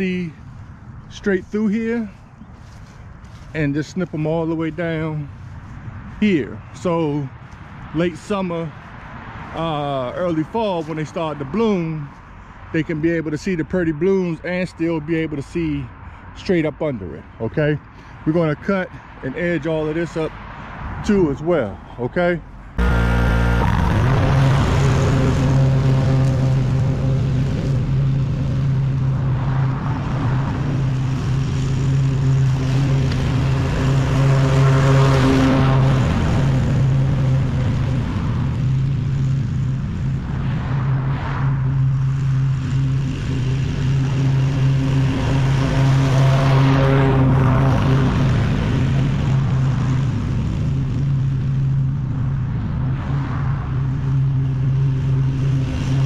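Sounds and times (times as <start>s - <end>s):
lawn mower engine running: 22.8s - 29.0s.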